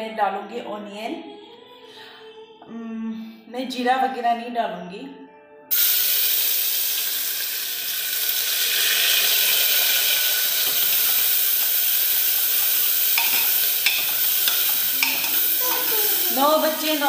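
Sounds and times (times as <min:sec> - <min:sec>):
onion sizzling in oil: 0:05.7 - 0:17.0
utensil clicking against pan: 0:12.5 - 0:15.9.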